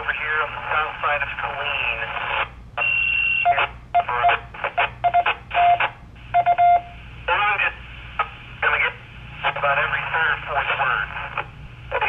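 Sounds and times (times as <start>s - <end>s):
radio crackling bursts: 0.0s - 2.6s, 3.5s - 12.0s
high radio beep: 2.8s - 7.0s
short radio beeps: 2.8s - 7.0s.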